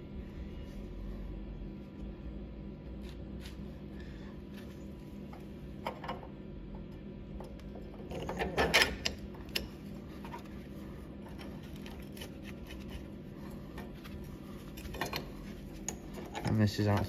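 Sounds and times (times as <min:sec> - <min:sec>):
steady low hum: 0:00.0 - 0:17.0
metal parts clicking and clunking: 0:07.4 - 0:10.6, 0:13.7 - 0:17.0.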